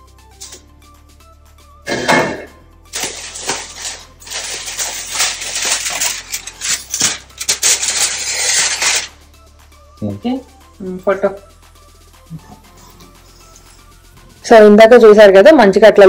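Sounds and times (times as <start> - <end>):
aluminium foil crinkling: 2.9 - 9.2.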